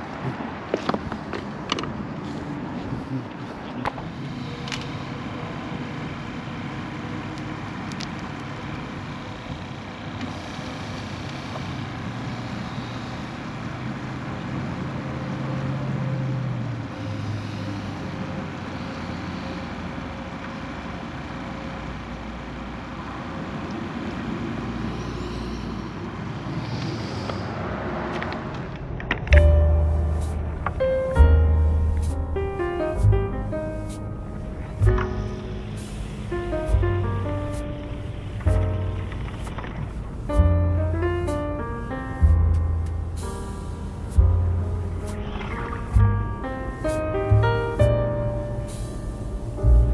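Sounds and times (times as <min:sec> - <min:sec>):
heavy vehicle engine drone: 0:00.0 - 0:49.9
road traffic: 0:00.0 - 0:49.9
music: 0:29.3 - 0:39.7, 0:40.3 - 0:49.9.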